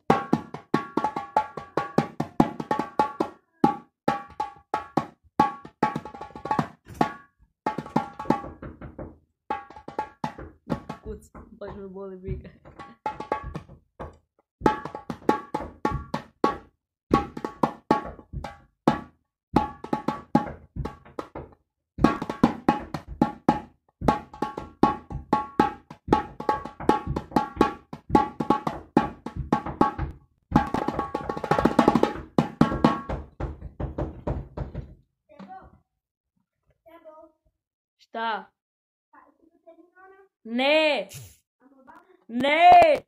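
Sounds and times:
metal goblet drum played by hand: 0.0s - 34.9s.

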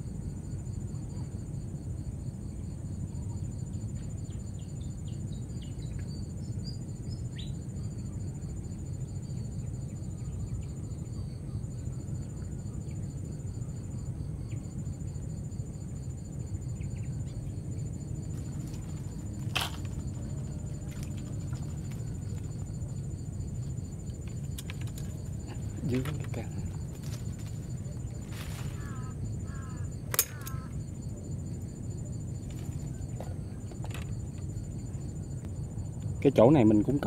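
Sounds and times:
insects trilling: 0.0s - 37.0s
thin continuous whine: 0.0s - 37.0s
sharp click: 30.1s - 30.6s.

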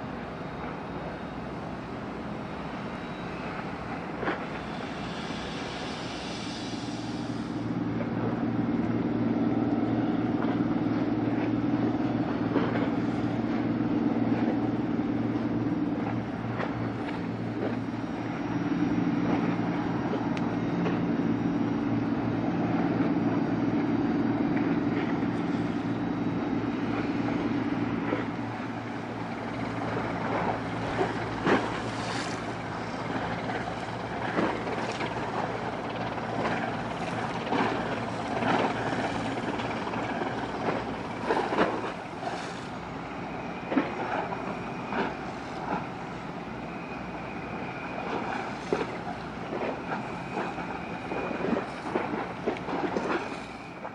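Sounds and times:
ship machinery low hum: 0.0s - 53.9s.

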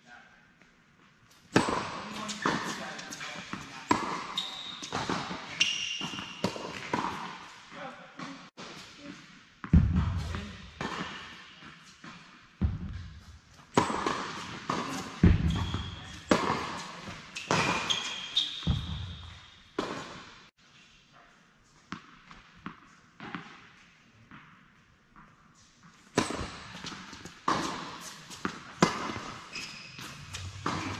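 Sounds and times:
shoe squeaks: 2.0s - 6.5s, 14.8s - 19.5s, 29.1s - 30.9s
ball bouncing on court: 9.6s - 11.3s, 12.6s - 13.1s, 13.8s - 20.2s, 26.2s - 29.4s, 30.0s - 30.9s
tennis ball hit by rackets: 13.8s - 17.9s, 26.2s - 29.4s.

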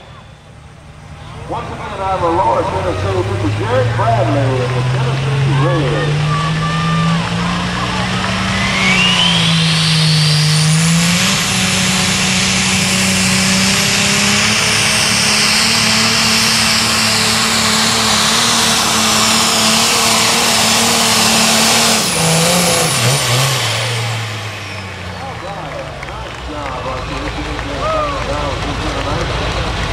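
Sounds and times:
tractor diesel engine at full power: 0.0s - 29.9s
turbo whistle sliding down: 8.3s - 11.2s.

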